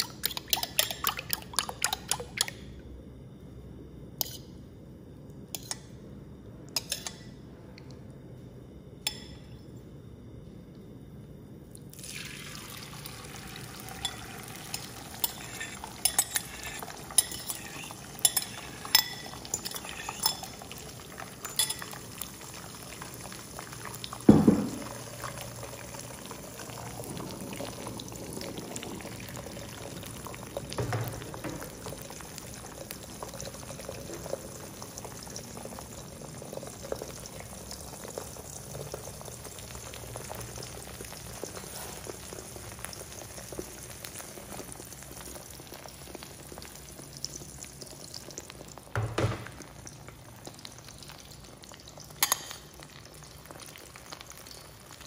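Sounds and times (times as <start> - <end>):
egg sizzling in oil: 12.0 - 55.0
loud thump: 24.3 - 24.8, 49.0 - 49.6.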